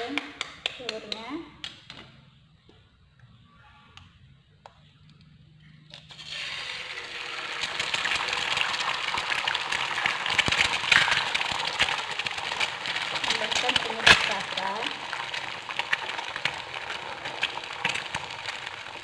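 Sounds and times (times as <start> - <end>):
egg sizzling in hot oil: 6.0 - 19.0.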